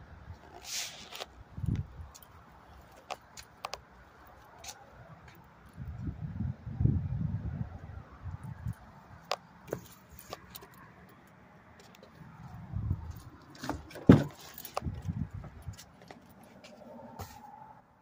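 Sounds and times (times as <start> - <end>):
handling clicks and rustles: 0.4 - 5.9, 8.4 - 17.5.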